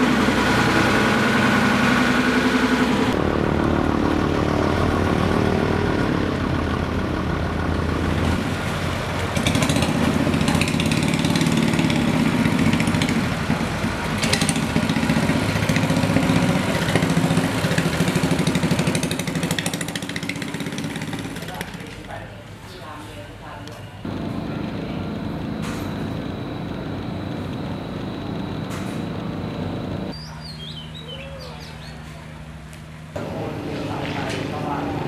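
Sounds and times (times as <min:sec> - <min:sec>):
boat engine throbbing: 0:24.1 - 0:30.1.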